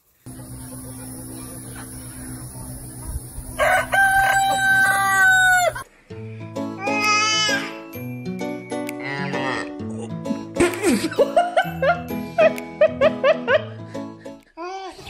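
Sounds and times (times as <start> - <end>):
rooster crowing: 3.4 - 5.8.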